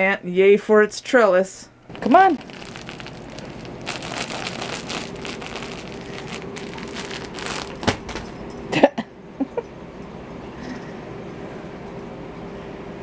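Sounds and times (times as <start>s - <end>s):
crinkly fabric toy rustling: 1.9s - 8.2s.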